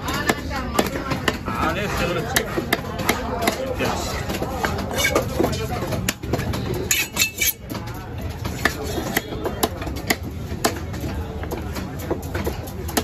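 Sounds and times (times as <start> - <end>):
people talking: 0.0 - 13.0
cleaver chopping fish on wood: 0.1 - 7.6, 8.4 - 11.0.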